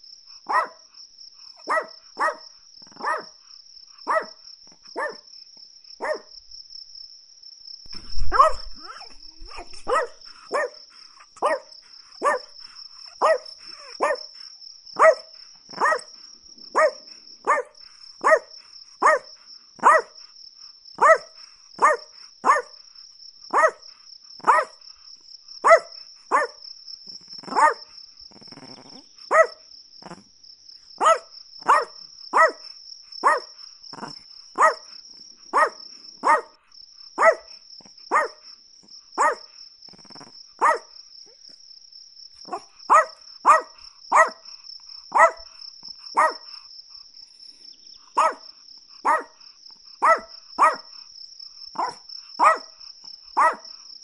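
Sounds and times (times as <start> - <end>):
crickets chirring: 0.0 - 54.0
small dog barking: 0.4 - 0.9, 1.6 - 5.3, 6.0 - 6.3, 8.0 - 14.4, 15.0 - 20.2, 21.0 - 22.8, 23.5 - 24.8, 25.6 - 26.6, 27.4 - 30.2, 31.0 - 36.6, 37.2 - 38.5, 39.2 - 41.5, 42.4 - 46.6, 48.1 - 49.4, 50.0 - 51.0, 51.7 - 52.8, 53.4 - 53.8.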